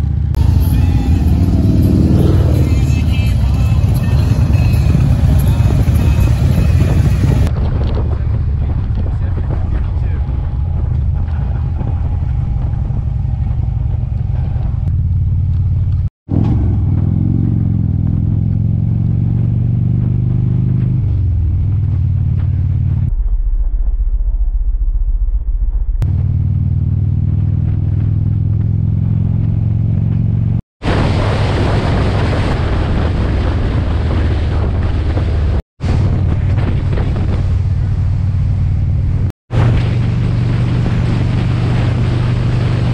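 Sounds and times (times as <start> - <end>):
wind noise on microphone: 0.0 - 14.9, 30.8 - 42.9
motorcycle engine accelerating: 0.0 - 23.2, 25.9 - 42.9.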